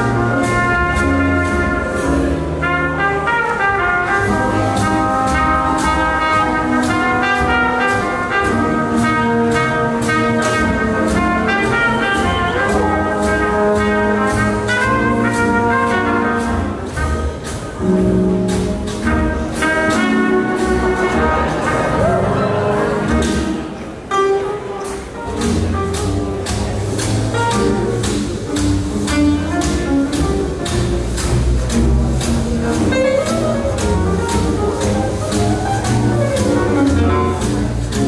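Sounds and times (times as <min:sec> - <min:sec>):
trumpet: 0:00.0 - 0:30.2
double bass: 0:00.0 - 0:38.0
drums: 0:00.0 - 0:38.0
piano: 0:00.0 - 0:38.0
trombone: 0:00.0 - 0:38.0.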